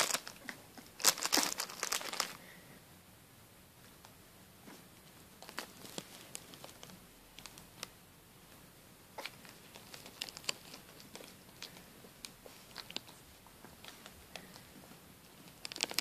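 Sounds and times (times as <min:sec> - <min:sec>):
plastic bag crinkling: 0:00.0 - 0:02.4, 0:05.4 - 0:07.6, 0:09.2 - 0:11.8, 0:15.4 - 0:16.0.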